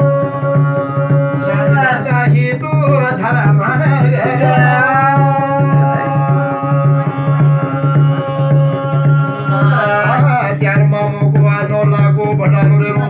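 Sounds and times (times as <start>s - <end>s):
hand drum beat: 0.0s - 13.0s
man singing: 0.0s - 13.0s
metal plate struck: 3.7s - 8.0s.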